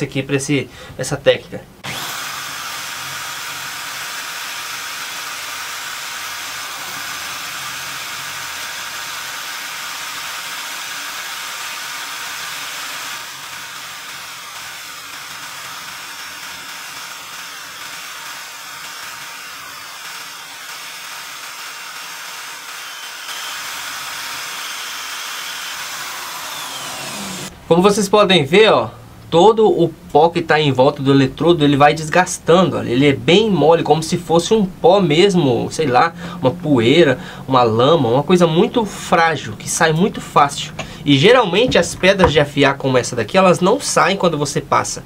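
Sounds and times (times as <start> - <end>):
electric drill running: 1.8 - 27.5, 40.8 - 42.4.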